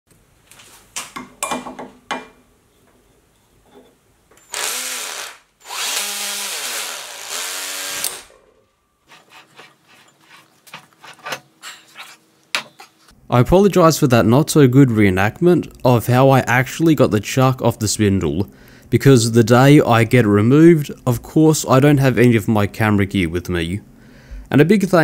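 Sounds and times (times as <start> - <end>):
hand-held power tool running: 4.5 - 8.4.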